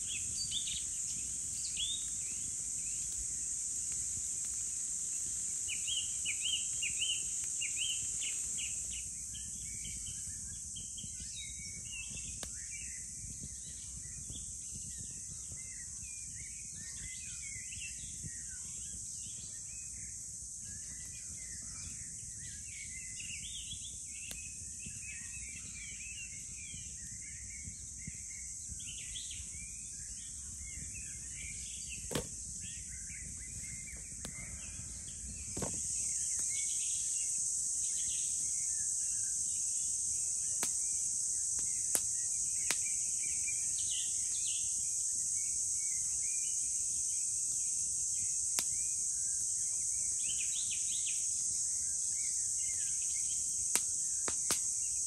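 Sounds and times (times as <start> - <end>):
campfire crackling: 0.0 - 21.4, 22.0 - 55.0
insects droning: 0.0 - 55.0
birds chirping: 20.8 - 39.0.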